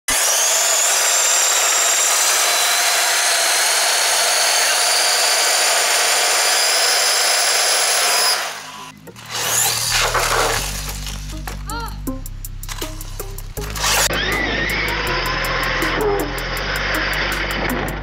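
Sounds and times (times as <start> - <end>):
toy truck electric motor whirring: 0.1 - 11.4, 12.6 - 18.0.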